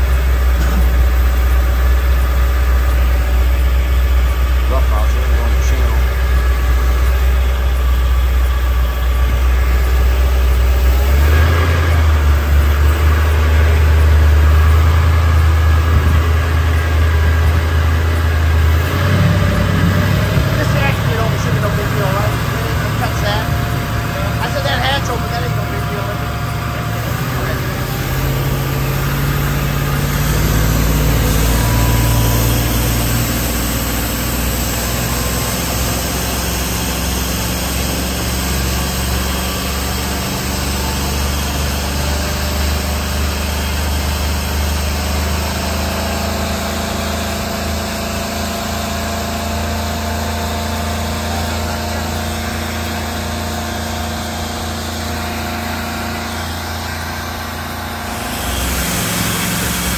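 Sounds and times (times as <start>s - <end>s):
boat inboard engine running: 0.0s - 59.9s.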